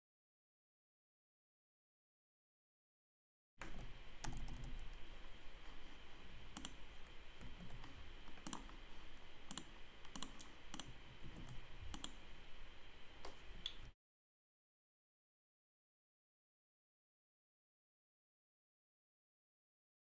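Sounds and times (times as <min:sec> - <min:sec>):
mouse and keyboard clicks: 0:06.5 - 0:06.8, 0:07.4 - 0:08.8, 0:09.5 - 0:12.2.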